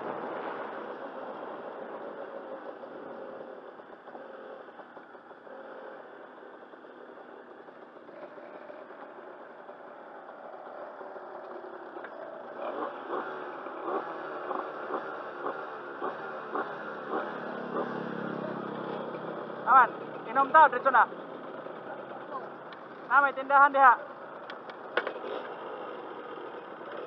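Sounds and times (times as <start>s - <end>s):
dirt bike engine: 0.0s - 27.0s
sharp regular clicks: 22.6s - 23.1s, 24.3s - 25.5s.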